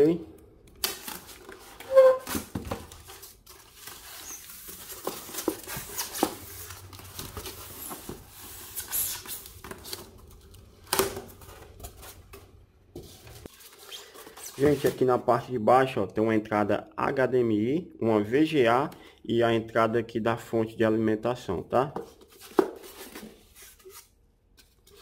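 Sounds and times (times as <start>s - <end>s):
styrofoam scraping and creaking: 1.2s - 9.5s.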